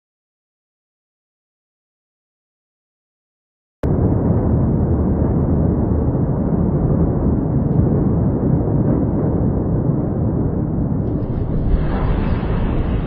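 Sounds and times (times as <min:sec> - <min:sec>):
steady low rumbling: 0:03.8 - 0:13.0.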